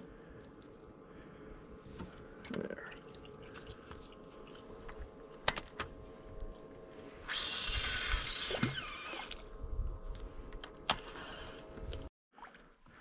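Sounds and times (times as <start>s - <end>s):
low hum: 0.0s - 12.1s
fishing reel whirring: 7.2s - 9.6s, 10.9s - 11.7s.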